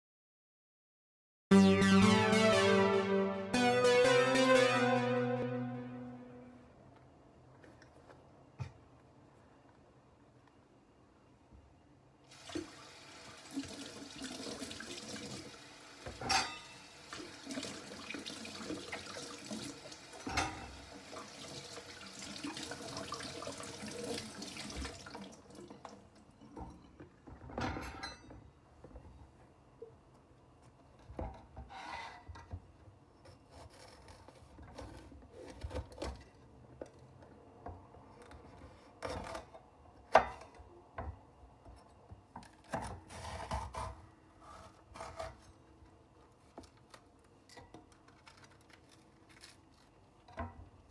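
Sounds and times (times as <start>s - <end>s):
tap water running: 12.3s - 26.2s.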